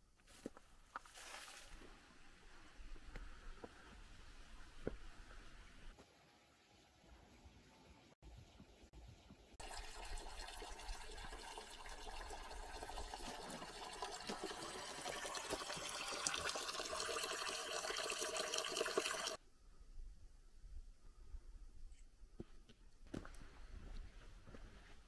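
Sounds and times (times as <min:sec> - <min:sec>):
water pouring into stone basin: 0:09.6 - 0:19.4.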